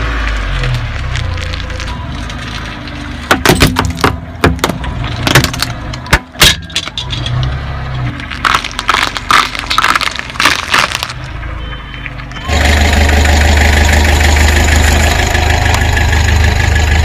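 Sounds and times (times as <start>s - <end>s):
car engine hum: 0.0s - 17.0s
glass bottle cracking under tyre: 1.0s - 7.4s, 8.2s - 11.4s.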